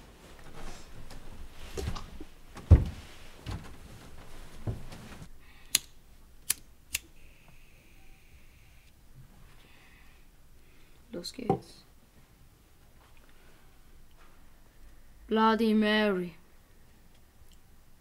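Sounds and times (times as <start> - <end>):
muffled thumps and rustling: 0.0 - 5.3
faint high hum: 5.3 - 18.0
sharp clicks: 5.6 - 7.1.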